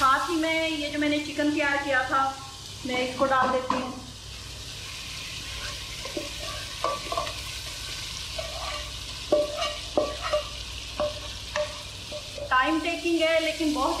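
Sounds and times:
food sizzling: 0.0 - 14.0
wooden spatula scraping a pan: 5.5 - 12.5.

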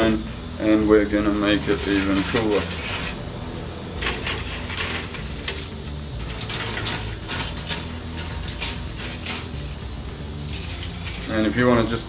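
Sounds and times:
plastic pieces clicking and rattling: 4.0 - 9.8, 10.4 - 11.4.

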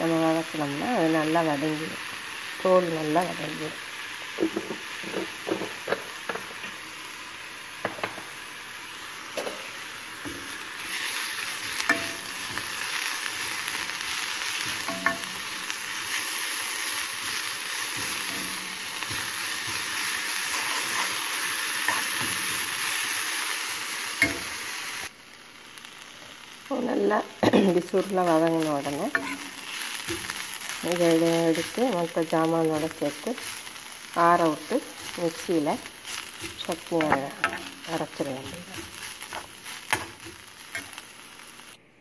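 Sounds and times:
food sizzling in a pan: 0.0 - 41.8
steel spoon scraping a pan: 9.4 - 23.1, 29.1 - 31.8, 34.4 - 41.7.

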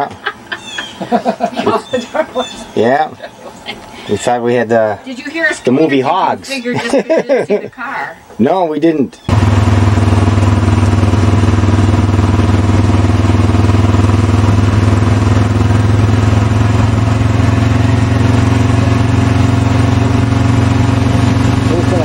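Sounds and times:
engine running steadily: 9.3 - 22.0.

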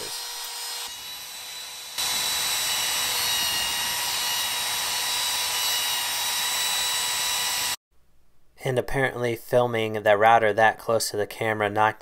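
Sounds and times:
trim router high whine: 0.0 - 7.8.

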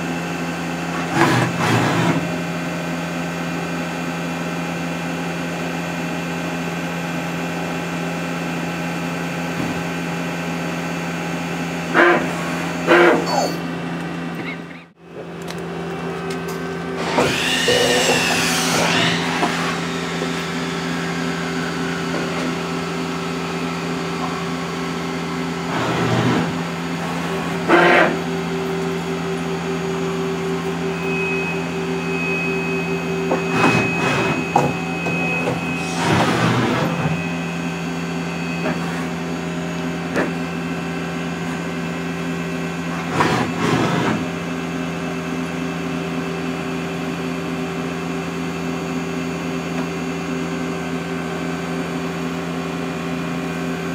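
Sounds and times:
lathe machine hum: 0.0 - 53.9
rushes of machine noise: 16.9 - 42.1
thin high whine: 26.4 - 41.8.

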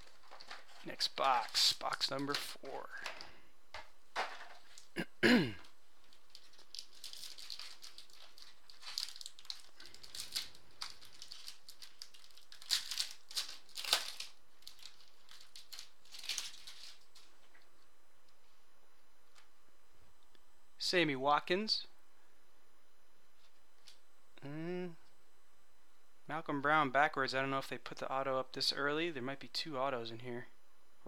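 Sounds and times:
foil packaging crinkling: 0.0 - 3.3, 5.6 - 17.6.

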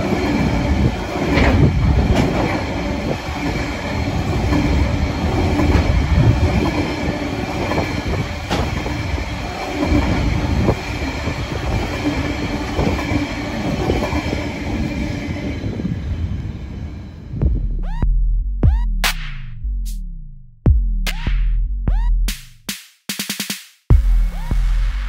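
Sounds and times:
train wheels rumbling on rails: 0.0 - 17.7.

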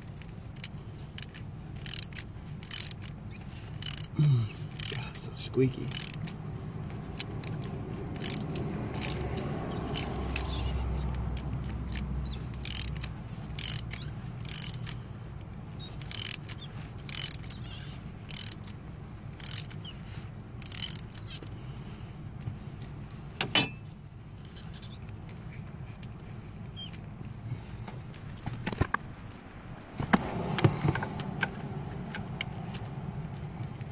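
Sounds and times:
ratchet wrench clicking: 0.0 - 6.4, 7.0 - 21.6
metallic clank: 23.4 - 24.0.

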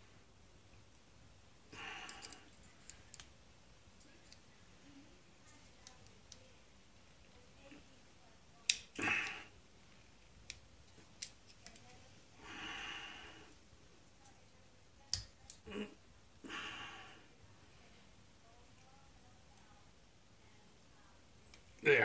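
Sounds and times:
faint metal clicks and scraping: 2.0 - 4.6, 5.4 - 7.8, 10.0 - 12.1
person breathing out: 12.4 - 13.5, 16.4 - 17.3.

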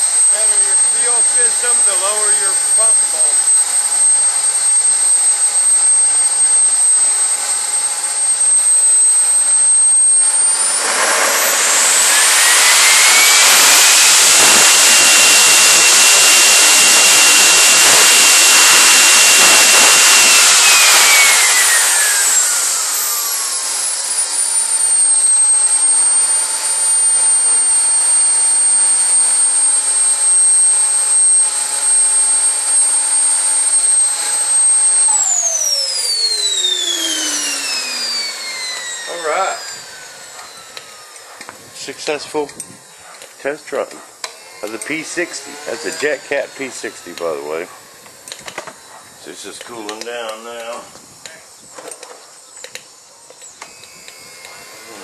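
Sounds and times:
exhaust rushing: 0.0 - 29.8, 44.6 - 48.0
model jet turbine whining: 0.0 - 55.0.

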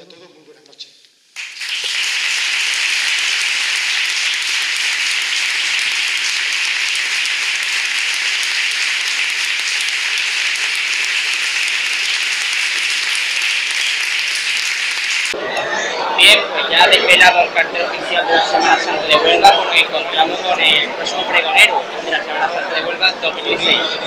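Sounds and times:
audience applauding: 1.4 - 15.4.

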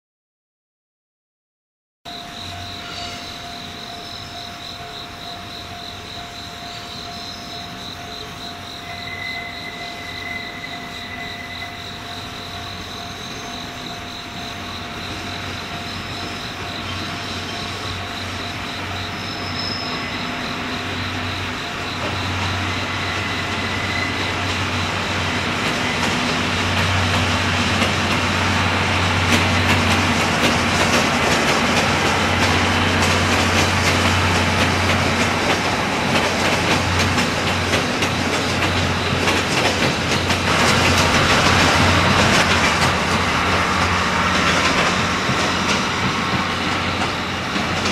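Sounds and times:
train running past: 2.1 - 47.9
wheel clicks over rail joints: 29.2 - 47.9.

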